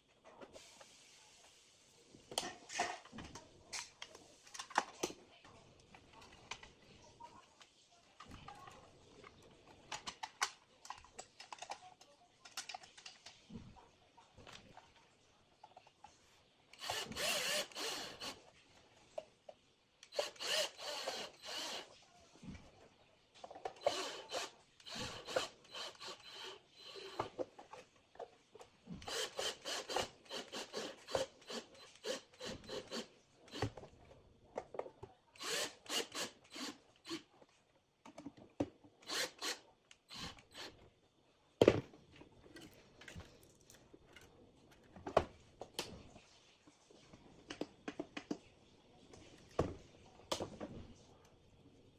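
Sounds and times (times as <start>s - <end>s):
cordless drill driving screws: 16.8s - 18.4s, 20.1s - 21.9s, 23.8s - 27.3s, 29.0s - 33.8s, 35.4s - 37.2s, 39.0s - 40.7s.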